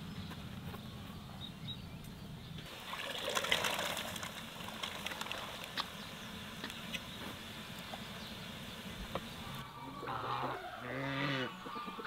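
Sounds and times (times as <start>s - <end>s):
water splashing in a metal pot: 2.7s - 5.8s.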